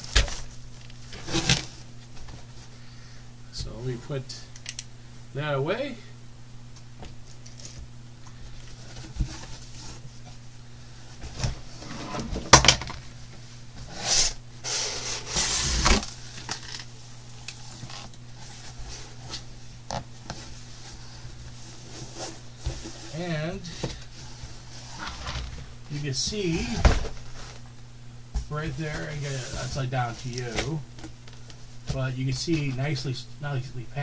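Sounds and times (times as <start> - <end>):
cardboard scraping on cardboard: 13.8 - 16.1, 23.8 - 25.7, 28.6 - 30.8.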